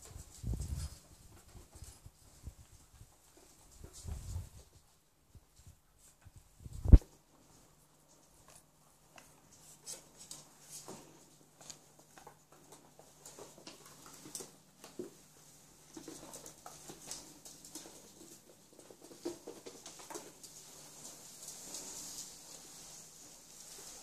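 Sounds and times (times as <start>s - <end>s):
mop swishing over hard floor: 19.0s - 24.0s.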